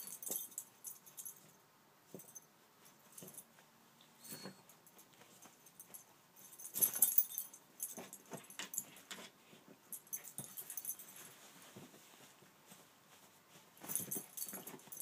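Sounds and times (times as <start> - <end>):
dog scrabbling on blankets: 7.8 - 15.0.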